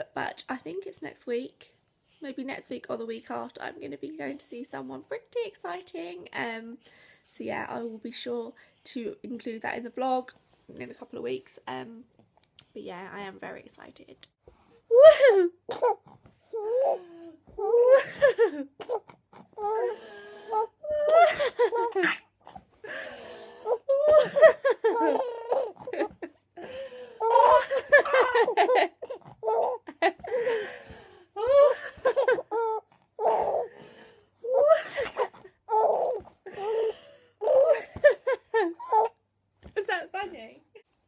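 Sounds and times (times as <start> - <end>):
baby laughing: 16.6 - 19.9, 20.6 - 22.2, 23.7 - 26.3, 27.2 - 30.4, 31.4 - 33.7, 34.5 - 39.2
baby gasping: 25.0 - 27.8, 28.4 - 37.8.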